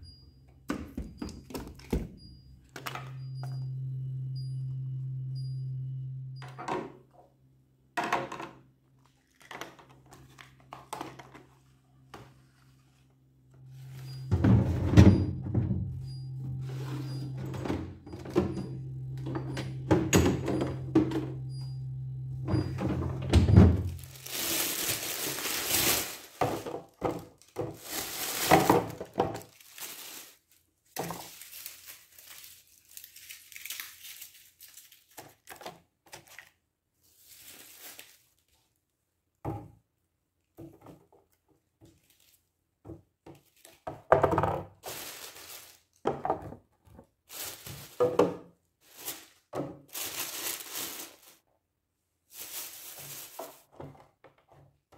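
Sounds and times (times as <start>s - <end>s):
steady low hum: 2.3s - 6.5s, 13.4s - 24.7s
plastic bins knocking: 14.2s - 16.0s, 22.4s - 29.6s, 43.9s - 44.9s
packaging crinkling and rustling: 23.8s - 38.8s, 44.8s - 46.0s, 47.2s - 48.2s, 48.8s - 51.4s, 52.3s - 53.8s.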